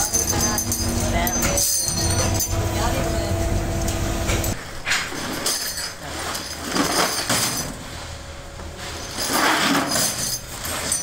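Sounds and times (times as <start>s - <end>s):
plastic sacks rustling and scraping: 4.6s - 11.0s.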